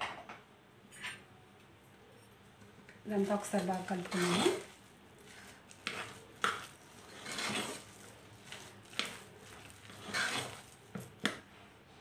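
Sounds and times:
food squishing being mashed: 0:03.2 - 0:11.5.

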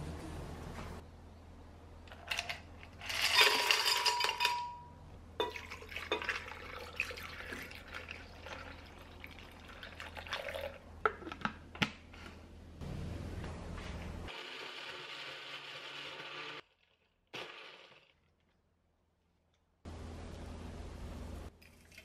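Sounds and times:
ice cubes clattering into glass jar: 0:03.0 - 0:04.7
juice pouring over ice: 0:05.5 - 0:10.8.

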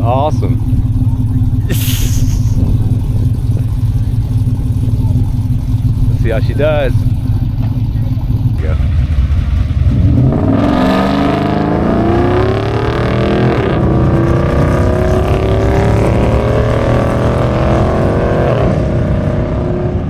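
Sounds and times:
pickup truck engine accelerating: 0:00.0 - 0:20.0.

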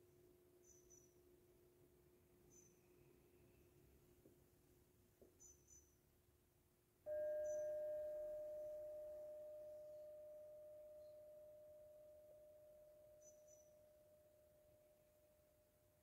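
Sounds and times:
metal singing bowl ringing: 0:07.1 - 0:15.3.

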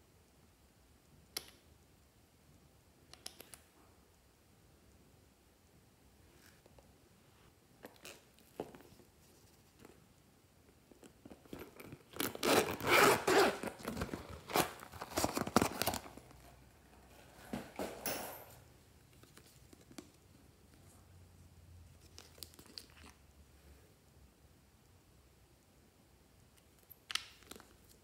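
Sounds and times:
zipper rasping open: 0:11.5 - 0:15.6.

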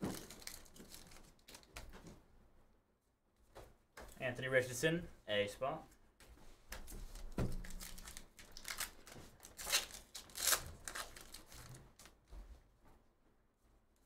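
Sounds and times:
foil wrapper tearing and crinkling: 0:00.1 - 0:01.8, 0:07.2 - 0:12.1.

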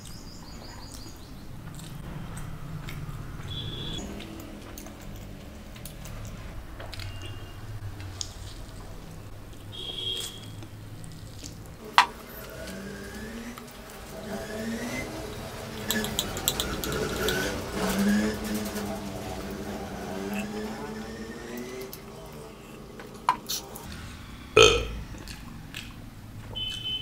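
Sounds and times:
slurping and chewing: 0:08.0 - 0:11.8
person humming mmm: 0:24.6 - 0:25.0.

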